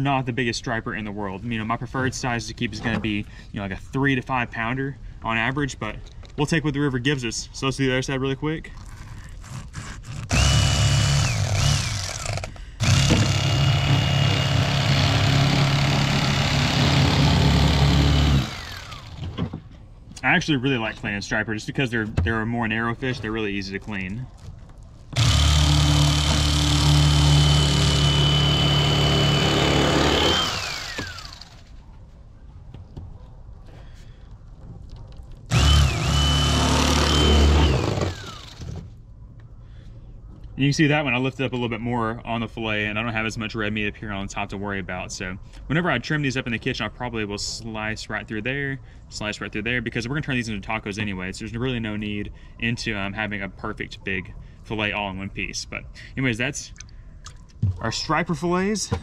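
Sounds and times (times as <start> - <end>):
electric fillet knife whining: 16.0 - 19.2, 25.2 - 31.6.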